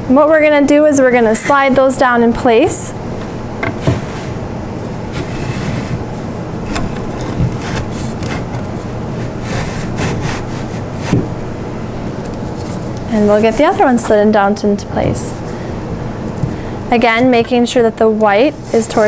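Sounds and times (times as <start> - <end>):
wooden board scraping: 3.6 - 11.4, 12.5 - 14.1.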